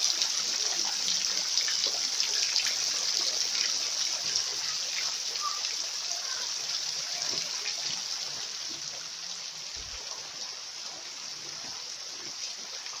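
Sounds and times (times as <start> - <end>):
stream water running over rocks: 0.0 - 13.0.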